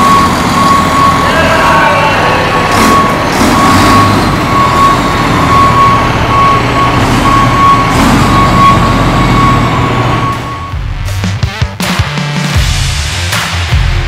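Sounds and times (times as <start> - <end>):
backup alarm beeping: 0.0 - 10.9
heavy equipment engine rumble: 0.0 - 11.2.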